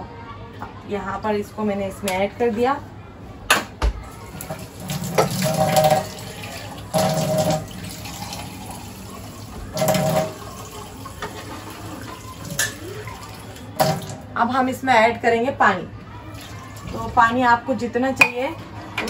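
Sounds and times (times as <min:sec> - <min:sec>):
tap water running into sink: 0:04.4 - 0:14.2.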